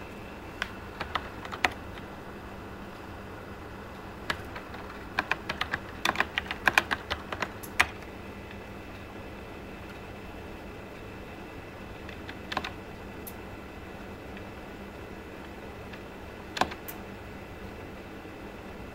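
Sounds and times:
faint steady hum: 0.0 - 18.9
laptop keyboard keys clicking: 0.6 - 2.1, 4.3 - 8.1, 12.0 - 12.8, 16.6 - 17.0.

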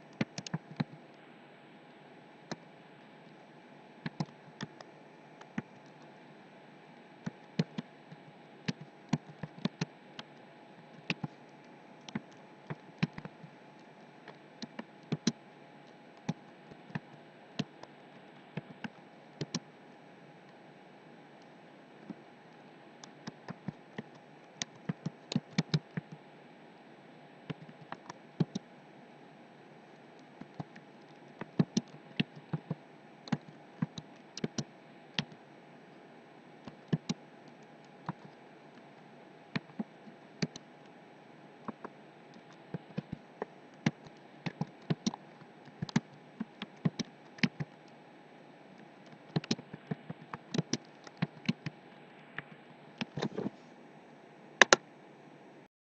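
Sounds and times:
computer keyboard typing: 0.2 - 1.0, 4.0 - 4.8, 7.2 - 7.9, 8.7 - 10.4, 14.3 - 15.4, 18.5 - 19.6, 23.0 - 26.2, 27.5 - 28.7, 30.4 - 35.4, 36.6 - 37.2, 39.6 - 40.6, 43.8 - 47.8, 49.1 - 51.7.

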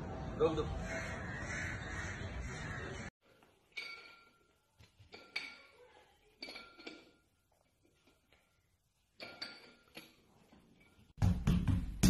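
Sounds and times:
dumbbell plates clinking: 3.6 - 11.2.

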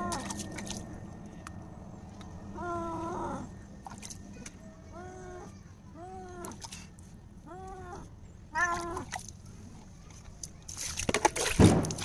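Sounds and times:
cat meowing: 7.4 - 9.1.

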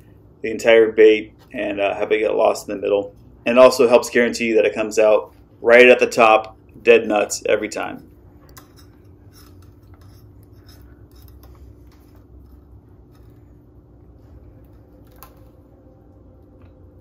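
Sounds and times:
low steady hum: 0.0 - 17.0
scratching and rubbing: 8.4 - 13.6.

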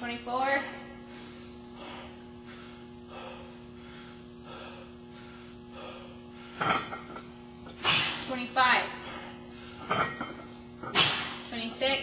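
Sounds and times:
man breathing hard: 1.0 - 6.9, 9.0 - 10.0.

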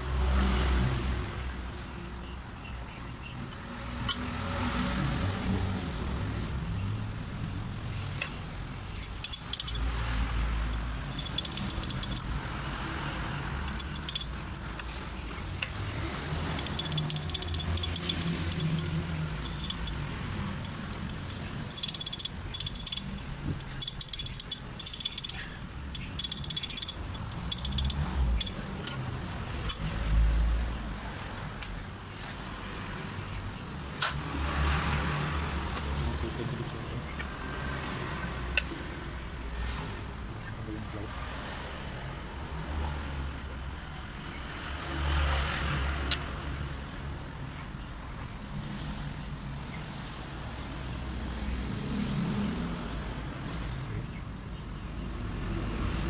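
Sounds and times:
metal clicks and rattling: 8.1 - 12.6, 13.5 - 30.0.

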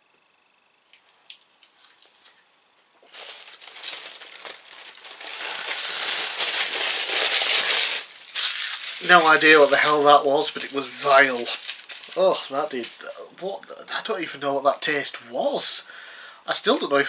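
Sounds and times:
plastic bag crinkling: 1.3 - 13.2.

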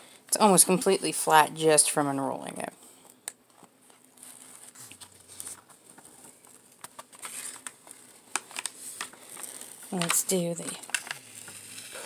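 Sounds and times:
plastic film rustling and crinkling: 3.0 - 12.0.

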